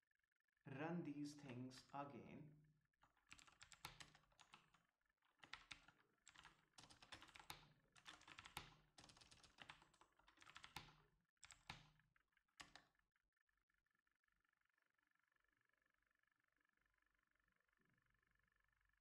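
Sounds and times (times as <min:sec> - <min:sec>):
faint typing on keyboard: 0:03.0 - 0:13.0.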